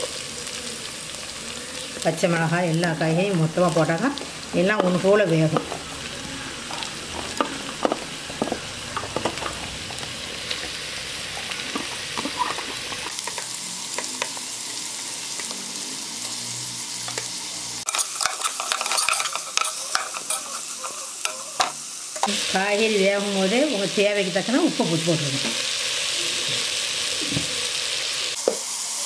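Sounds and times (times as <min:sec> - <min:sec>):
vegetables sizzling in hot oil: 0:00.0 - 0:29.0
spatula scraping a pot: 0:17.9 - 0:21.7.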